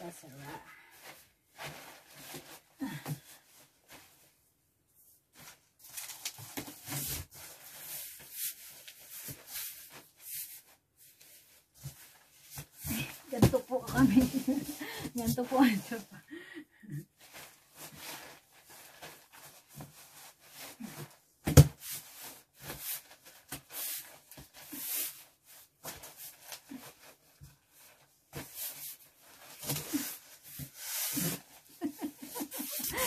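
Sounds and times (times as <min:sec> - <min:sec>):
clothes rustling: 0:05.3 - 0:16.2, 0:25.8 - 0:33.0.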